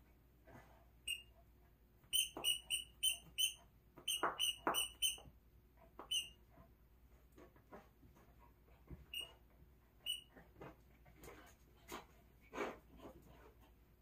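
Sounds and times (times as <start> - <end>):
squeaky dog toy squeaking: 1.0 - 1.3, 2.0 - 5.3, 6.0 - 6.4, 9.1 - 9.4, 10.0 - 10.4.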